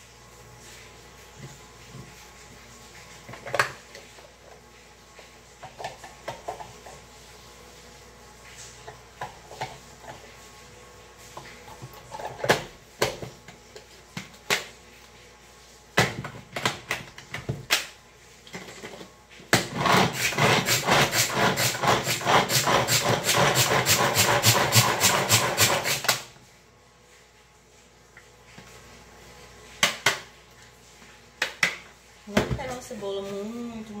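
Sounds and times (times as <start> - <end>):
food chopper blades whirring: 19.6 - 26.3.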